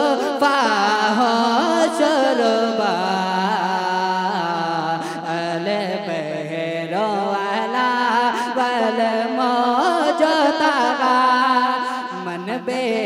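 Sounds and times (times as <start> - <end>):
man singing into a microphone: 0.0 - 13.0.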